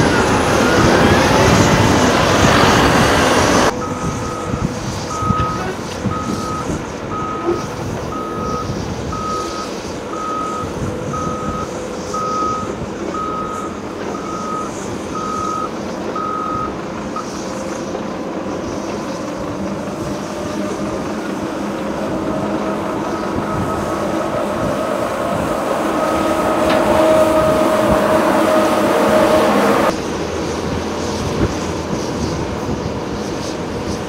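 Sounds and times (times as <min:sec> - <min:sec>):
diesel engine running: 0:00.0 - 0:34.0
reversing alarm beeps: 0:00.2 - 0:01.4, 0:03.7 - 0:17.3, 0:22.3 - 0:29.9.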